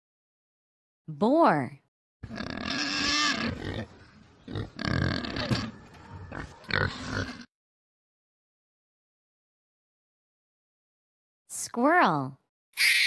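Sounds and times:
wild boar grunting: 2.2s - 7.5s.

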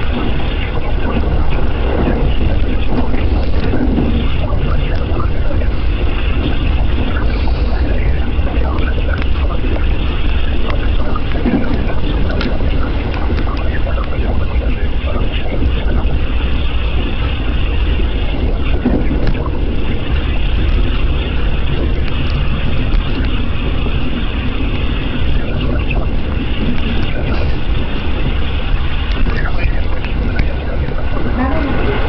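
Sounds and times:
train wheels rumbling on rails: 0.0s - 32.0s
train hiss: 7.1s - 8.6s.

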